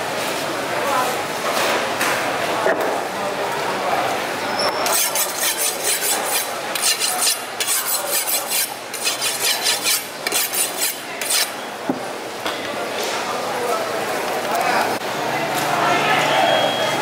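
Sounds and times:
knife scraping on whetstone: 0:04.8 - 0:11.6.

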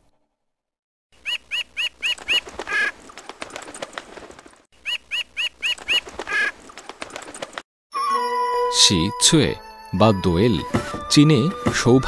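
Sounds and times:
magpie calling: 0:01.2 - 0:03.0, 0:04.8 - 0:06.6.

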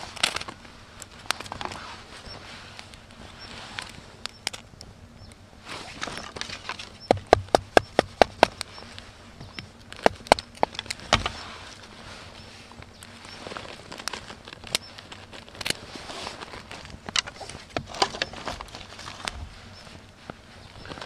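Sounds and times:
knife chopping wood: 0:07.1 - 0:08.7.

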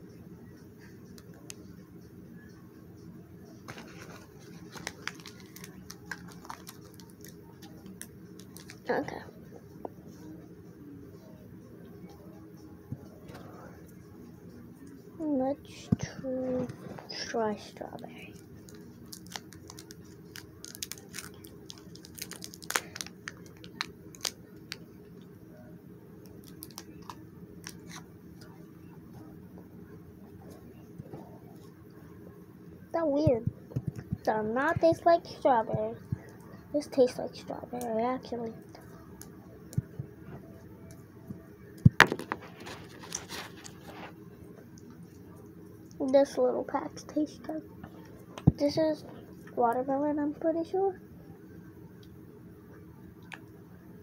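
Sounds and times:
candy wrapper crinkling: 0:03.7 - 0:09.0, 0:18.3 - 0:24.8, 0:26.2 - 0:28.1, 0:42.0 - 0:44.2.

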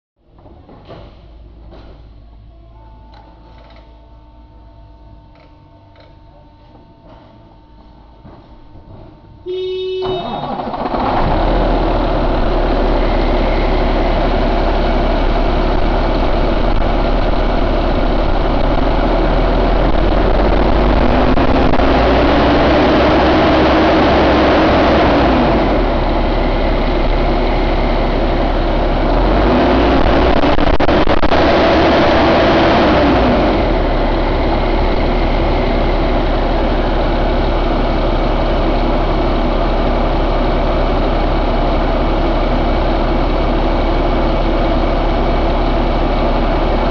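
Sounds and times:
diesel engine idling and revving: 0:09.5 - 0:46.9.

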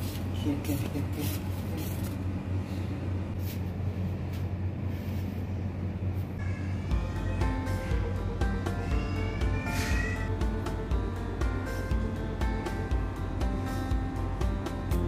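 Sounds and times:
background music: 0:06.4 - 0:15.0.

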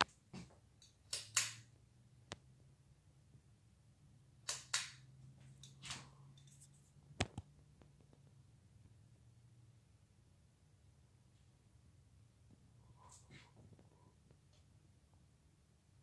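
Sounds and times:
sharp clicks: 0:04.4 - 0:05.0.

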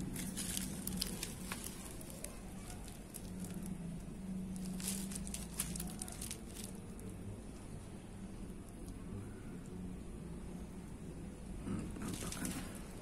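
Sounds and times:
bubble wrap crackling: 0:00.0 - 0:07.1, 0:12.0 - 0:12.9.

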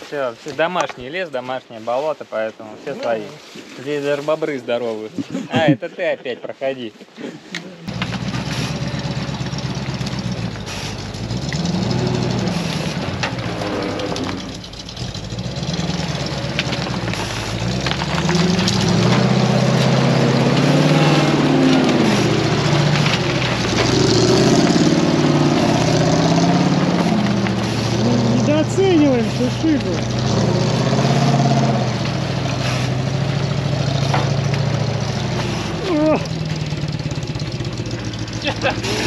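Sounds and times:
truck engine revving: 0:07.8 - 0:39.0.

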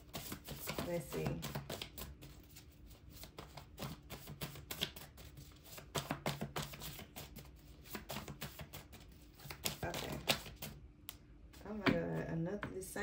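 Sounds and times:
cards being shuffled: 0:00.0 - 0:10.8.

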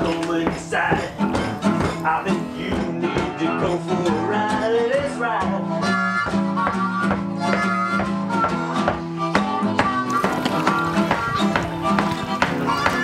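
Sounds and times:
plucked guitar: 0:00.0 - 0:13.0
harmonica playing: 0:05.6 - 0:13.0.

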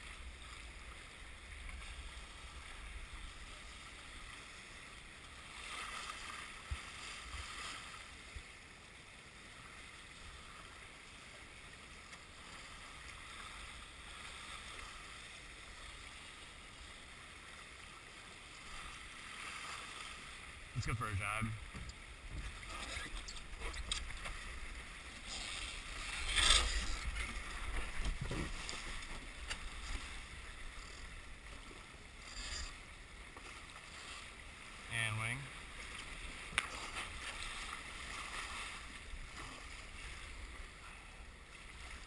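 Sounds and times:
water rushing along hull: 0:00.0 - 0:42.0
wind rumbling on microphone: 0:21.6 - 0:31.8.

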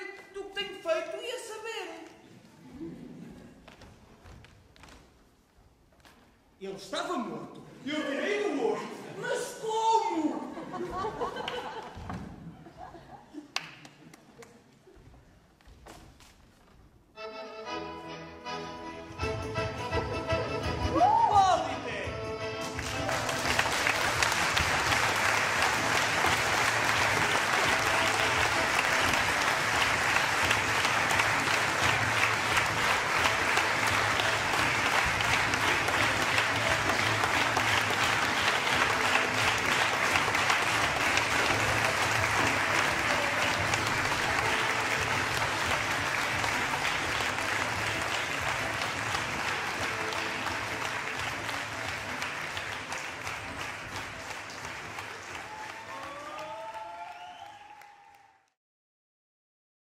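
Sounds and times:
audience applauding: 0:10.8 - 0:12.1, 0:20.9 - 0:58.6.

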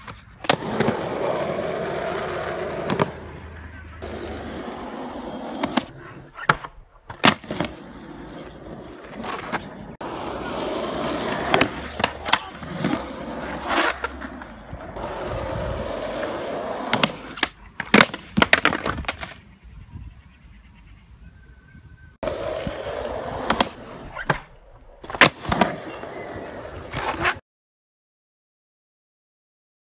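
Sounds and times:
skateboard wheels rolling on asphalt: 0:00.0 - 0:06.3, 0:07.1 - 0:19.5, 0:22.2 - 0:24.2, 0:25.0 - 0:27.4
skateboard clacking on ground: 0:09.1 - 0:15.3, 0:16.0 - 0:19.4.

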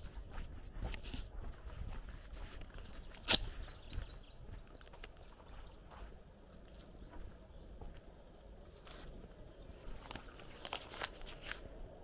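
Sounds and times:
footsteps on dirt lane: 0:00.0 - 0:11.8
birds chirping: 0:01.6 - 0:11.0
short high bird chirps: 0:03.1 - 0:04.5.

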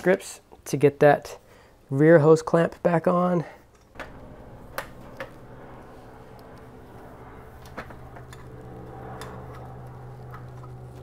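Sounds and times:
steady low hum: 0:03.9 - 0:11.0.

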